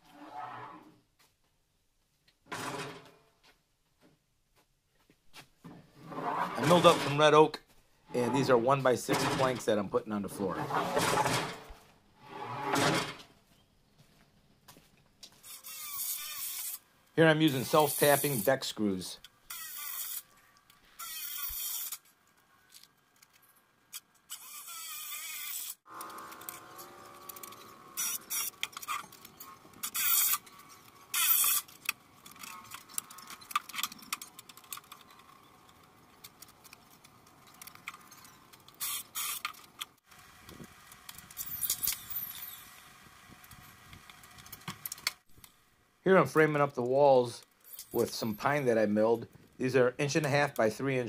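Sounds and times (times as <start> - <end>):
cordless drill driving screws: 15.4 - 16.8, 19.5 - 20.3, 21.0 - 22.0, 24.3 - 30.5.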